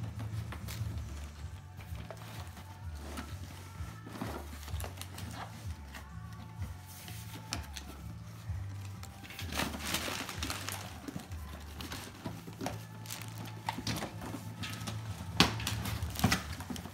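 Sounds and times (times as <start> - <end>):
cardboard rustling and scraping: 0.0 - 16.9
paper crinkling: 0.0 - 16.9.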